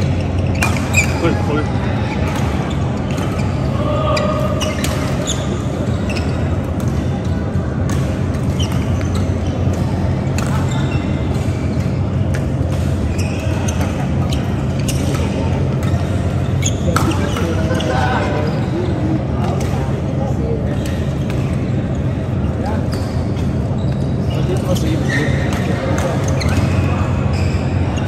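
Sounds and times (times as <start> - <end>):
rackets striking shuttlecock: 4.4 - 17.9.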